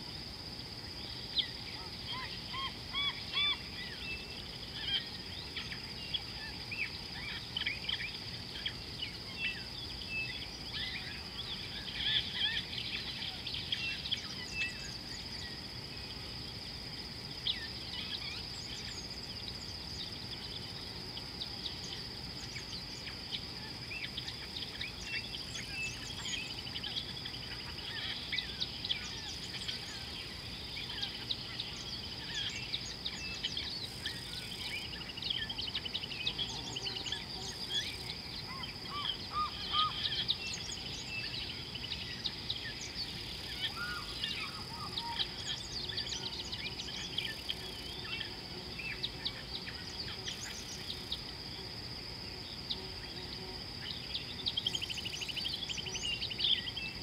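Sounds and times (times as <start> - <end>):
low background hiss: 0.0 - 57.0
small birds chirping: 0.5 - 57.0
high-pitched insect drone: 17.4 - 57.0.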